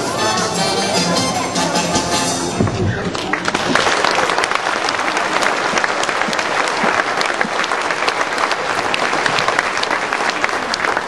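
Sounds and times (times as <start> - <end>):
large audience applauding: 2.9 - 11.0.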